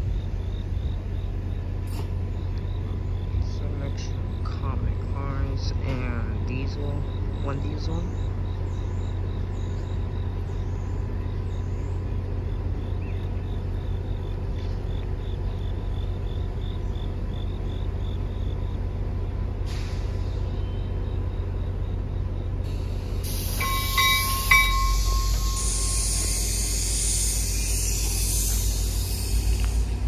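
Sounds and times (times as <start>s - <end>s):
diesel train idling: 0.0s - 30.0s
air brakes hissing: 1.8s - 2.3s, 19.5s - 21.3s, 22.5s - 30.0s
short high tones: 23.5s - 26.7s.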